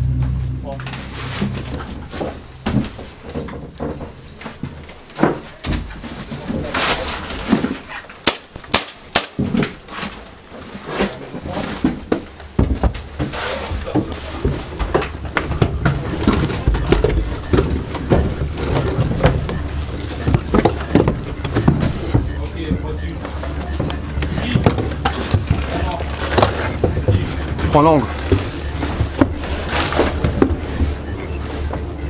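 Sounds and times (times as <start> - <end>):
low rumble: 0.0 - 4.6
sharp cracks: 8.1 - 9.8.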